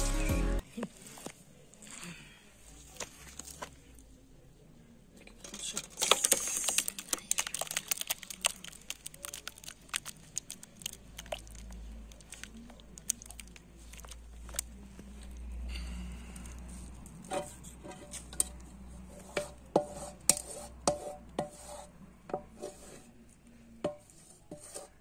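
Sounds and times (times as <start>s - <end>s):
sticky jam plopping and crackling: 5.9s - 14.8s.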